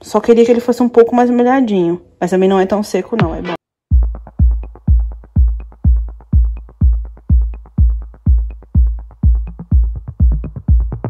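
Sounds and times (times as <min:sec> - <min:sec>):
electronic music with kick drum: 0:03.1 - 0:11.0.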